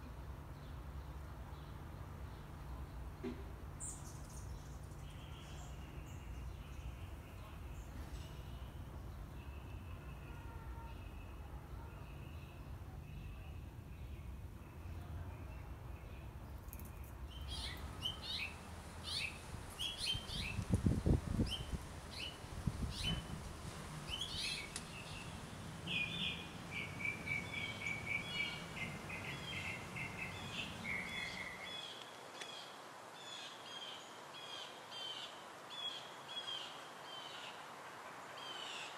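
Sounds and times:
small birds chirping: 0:00.6 - 0:37.6
low outdoor rumble: 0:12.6 - 0:31.7.

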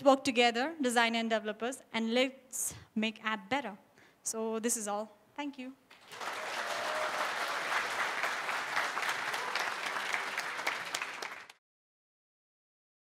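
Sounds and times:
audience applauding: 0:05.9 - 0:11.6.

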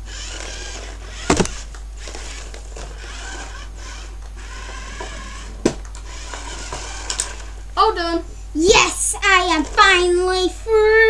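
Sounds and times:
low steady hum: 0:00.0 - 0:11.0
sharp knocks of toys: 0:01.2 - 0:01.6.

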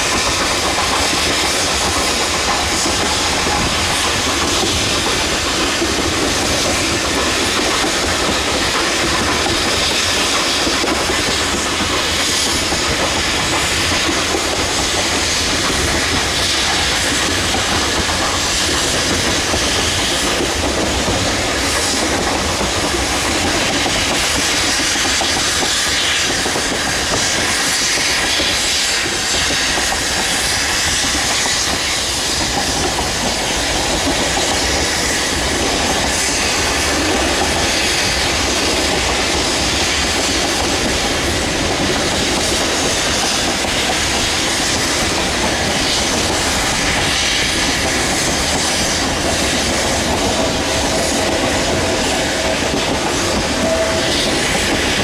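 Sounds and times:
steam locomotive hissing: 0:00.0 - 0:55.0
train wheels rumbling over rails: 0:00.0 - 0:55.0.

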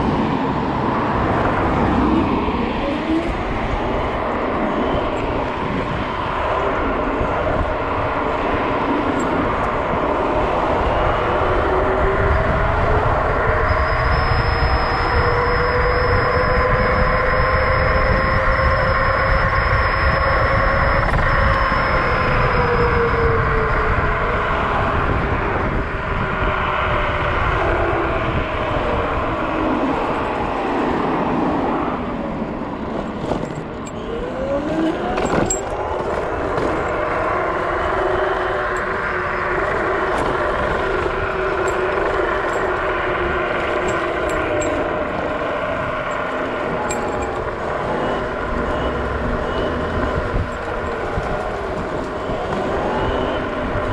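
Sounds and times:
electric scooter motor whine: 0:00.0 - 0:53.9
wind buffeting microphone: 0:00.0 - 0:53.9
keyring jingling: 0:46.9 - 0:47.4.

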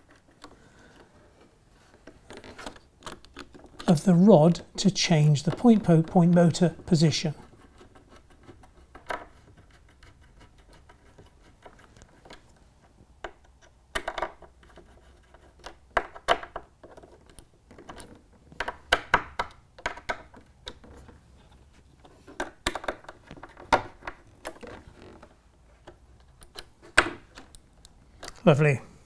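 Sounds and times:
plastic parts and screws clicking: 0:00.0 - 0:28.5.

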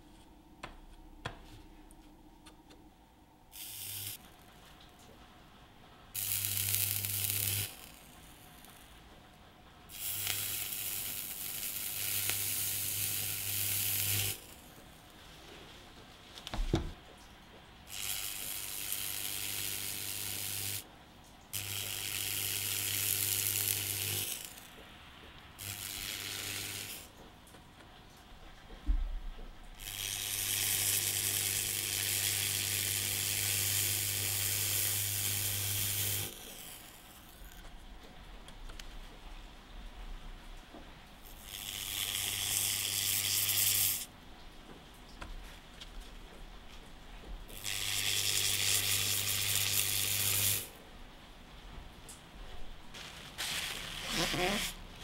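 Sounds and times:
weld cleaner brush sizzling: 0:03.5 - 0:04.2, 0:53.0 - 0:54.8.

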